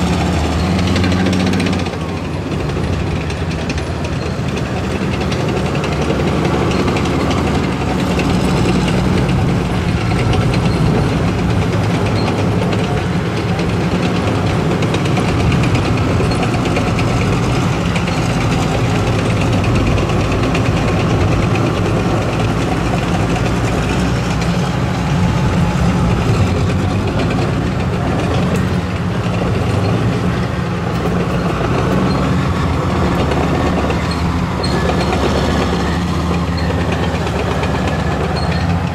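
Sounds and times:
steel tracks clattering: 0.0s - 38.9s
tank diesel engines running: 0.0s - 38.9s.

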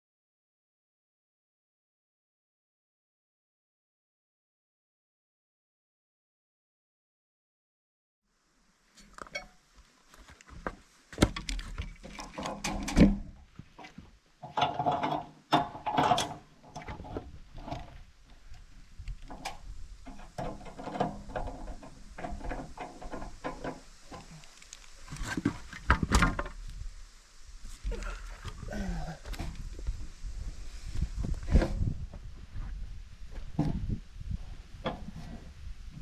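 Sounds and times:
metal hardware clanking: 14.4s - 16.9s.

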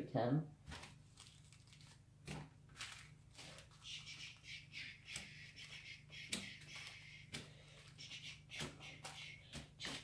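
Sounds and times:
plastic bags crinkling: 0.7s - 3.9s.

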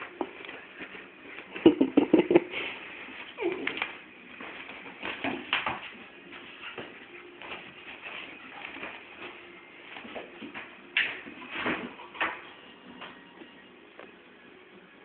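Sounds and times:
dogs play-fighting: 0.0s - 13.6s
scuffling: 2.5s - 12.4s.

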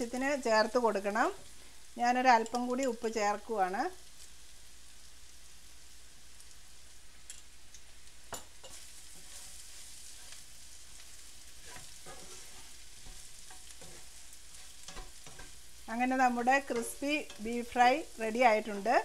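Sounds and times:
meat sizzling in a pan: 0.0s - 19.0s
stirring scrapes and clicks: 11.6s - 15.6s.

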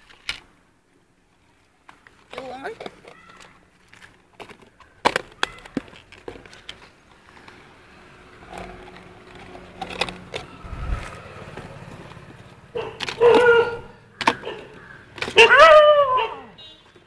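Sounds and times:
plastic containers clicking and knocking: 1.9s - 10.6s, 12.8s - 15.6s.

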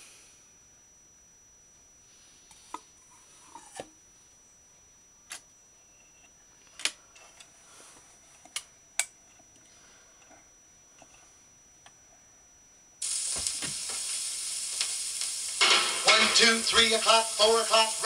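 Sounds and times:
record hiss and crackle: 12.9s - 18.0s.

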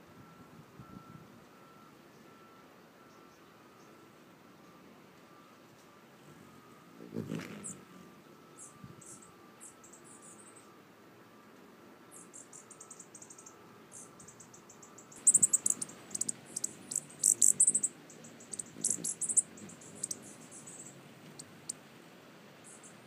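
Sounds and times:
hummingbird chip notes and chatter: 1.7s - 11.0s, 11.6s - 21.9s, 22.6s - 23.0s
hummingbird wingbeats humming: 6.2s - 10.8s, 12.1s - 22.0s.

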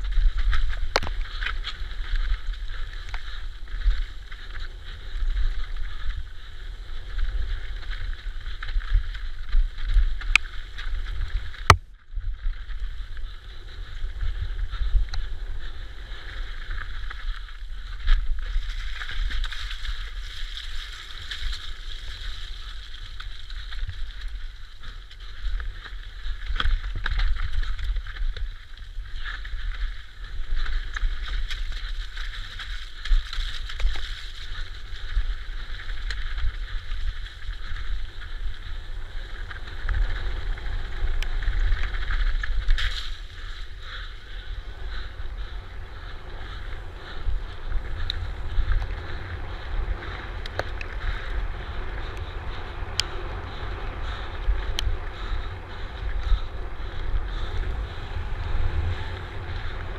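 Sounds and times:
bike knocking and rattling: 0.0s - 59.9s
wind rumble on microphone: 0.0s - 59.9s
tyre roar: 44.6s - 59.9s.

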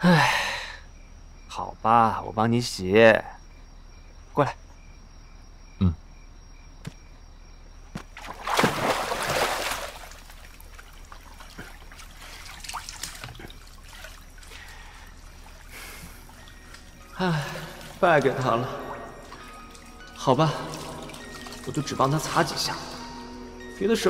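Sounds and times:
water sloshing and trickling: 7.9s - 24.0s
bath water splashing: 8.1s - 23.4s.

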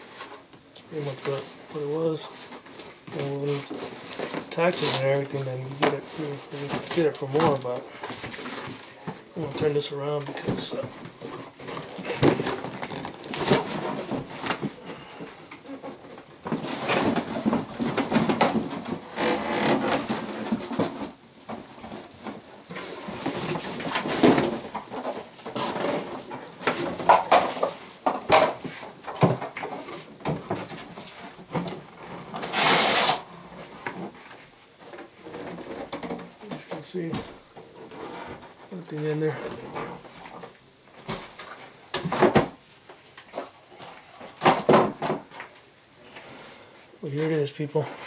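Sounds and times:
plastic wrapping crinkling: 0.0s - 29.0s.

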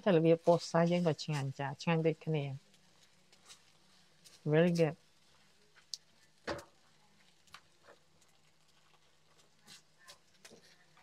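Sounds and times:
spatula tapping and scraping wok: 2.7s - 11.0s.

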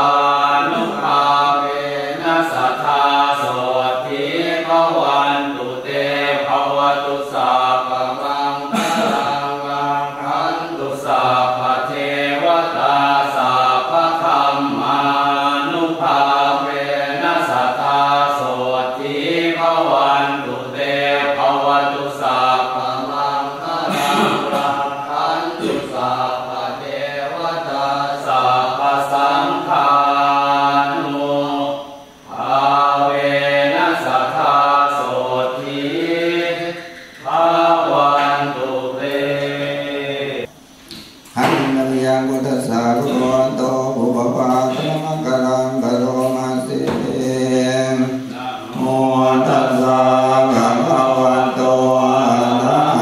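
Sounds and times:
voices chanting together: 0.0s - 53.0s.

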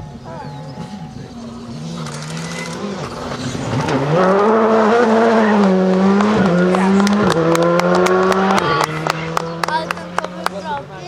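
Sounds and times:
rally car engine revving past: 0.7s - 11.0s
sharp cracks from car: 5.9s - 10.3s.

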